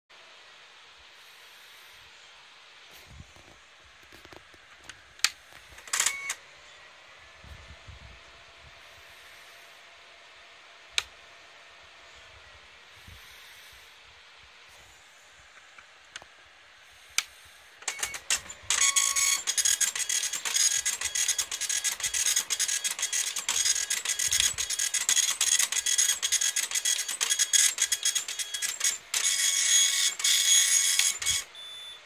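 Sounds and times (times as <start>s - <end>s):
quiet printer hum: 1.2s - 32.0s
printer clicks: 5.2s - 6.4s, 17.8s - 31.5s
dot-matrix printer buzzing chatter: 17.8s - 32.0s.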